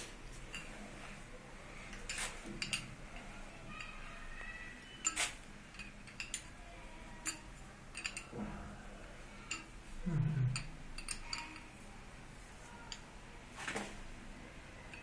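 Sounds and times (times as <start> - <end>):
spanner and nut clinking: 1.9 - 3.0, 5.0 - 6.6, 7.2 - 8.4, 10.6 - 11.7.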